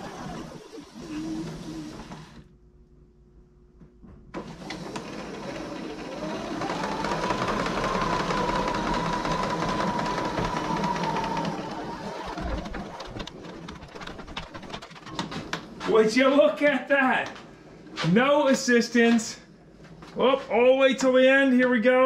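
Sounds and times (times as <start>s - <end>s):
hose reel retracting whir: 0.0s - 2.5s, 4.4s - 15.3s.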